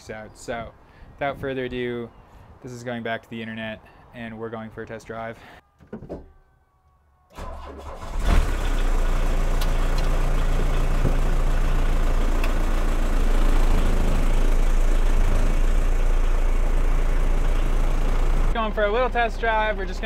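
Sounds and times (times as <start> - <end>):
diesel engine starting and idling: 7.3 - 20.0.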